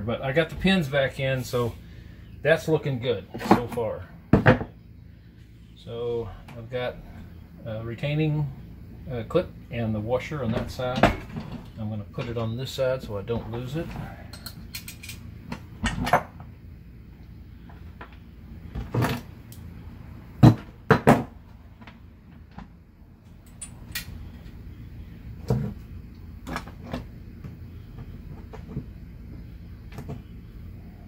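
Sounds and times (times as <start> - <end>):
tools knocking on wooden workbench: 4.4 - 4.8.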